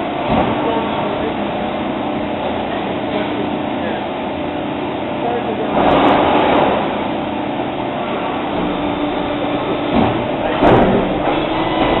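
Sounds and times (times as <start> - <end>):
machine humming: 0.0 - 12.0
short loud machine noise: 5.7 - 7.2, 8.2 - 12.0.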